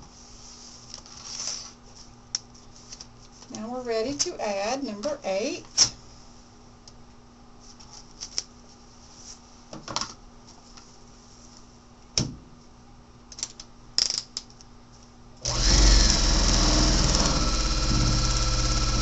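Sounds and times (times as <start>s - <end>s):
sewing machine stitching: 15.4s - 19.0s.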